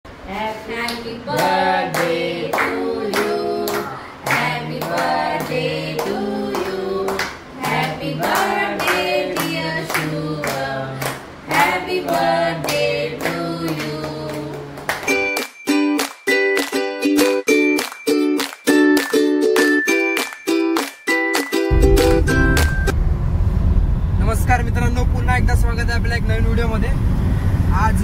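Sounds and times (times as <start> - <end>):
voices singing: 0.2 - 14.8
rhythmic hand clapping: 0.8 - 22.9.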